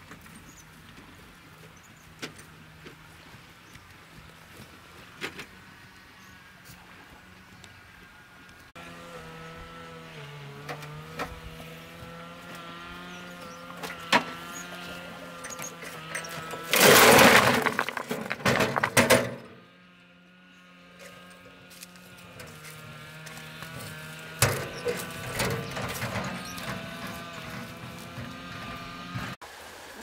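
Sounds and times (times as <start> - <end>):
loud rough crash: 16.5 - 19.6.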